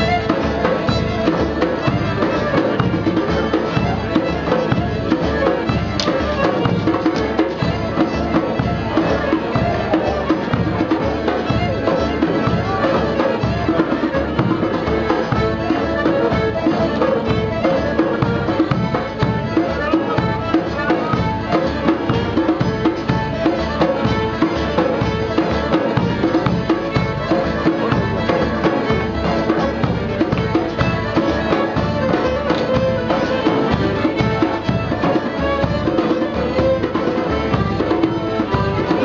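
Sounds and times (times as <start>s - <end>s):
accordion: 0.0s - 39.0s
bass drum steady beat: 0.0s - 39.0s
fiddle: 0.0s - 39.0s.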